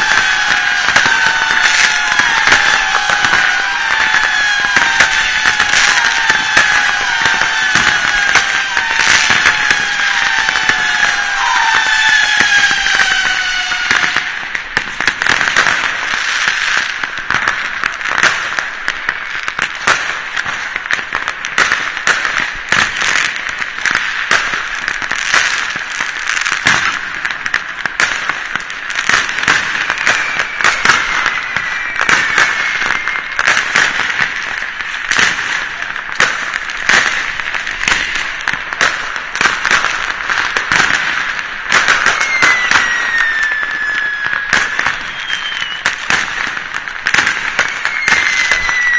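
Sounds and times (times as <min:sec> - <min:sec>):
falling firework whistles: 0:00.0 - 0:17.0, 0:28.0 - 0:36.2, 0:38.8 - 0:48.9
fireworks crackling and popping: 0:00.0 - 0:48.9.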